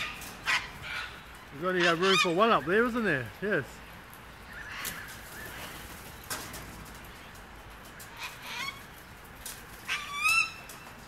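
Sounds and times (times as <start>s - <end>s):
cockatoos squawking: 0.0s - 3.0s, 8.0s - 9.0s, 9.8s - 10.8s.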